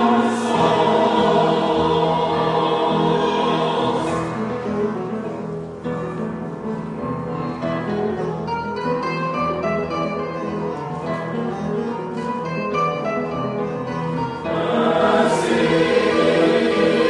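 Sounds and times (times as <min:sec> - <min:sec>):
choir singing: 0:00.0 - 0:04.8, 0:14.4 - 0:17.0.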